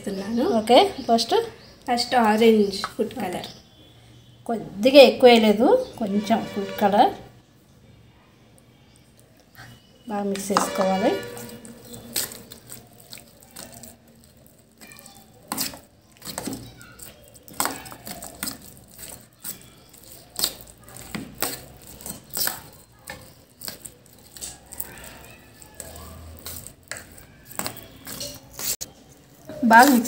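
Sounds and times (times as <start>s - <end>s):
spoon scraping metal bowl: 5.8s - 7.3s, 9.6s - 30.0s.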